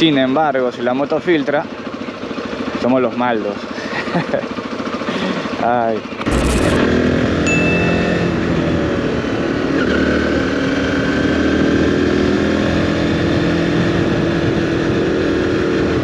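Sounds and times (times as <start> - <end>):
motorcycle engine accelerating: 6.1 - 16.0.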